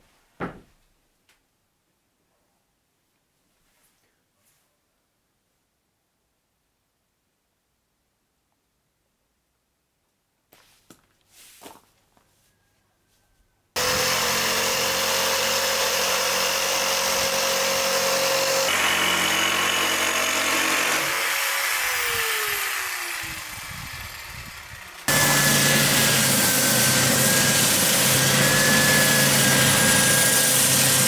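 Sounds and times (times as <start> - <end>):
electric jigsaw cutting: 13.8 - 31.0.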